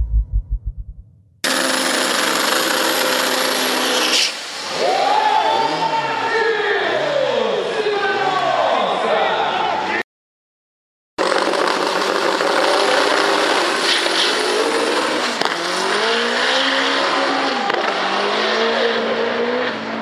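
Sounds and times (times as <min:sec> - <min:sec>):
race car engine accelerating: 0:11.2 - 0:20.0.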